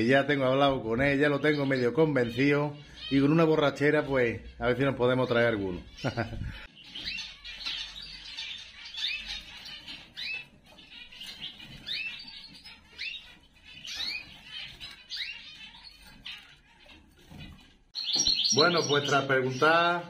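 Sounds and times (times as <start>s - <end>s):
birds chirping: 0.0s - 20.0s
soft bird twittering: 0.9s - 20.0s.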